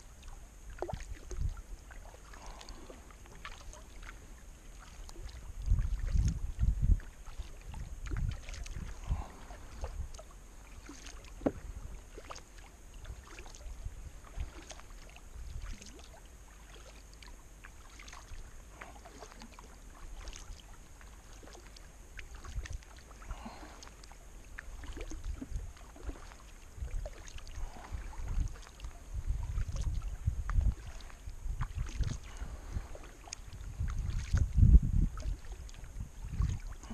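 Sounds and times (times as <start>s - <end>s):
paddle splashing in water: 0.0s - 36.9s.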